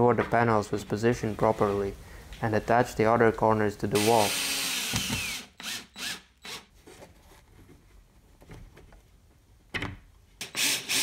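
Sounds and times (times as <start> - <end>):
cordless drill driving screws: 4.0 - 6.7, 10.4 - 11.0.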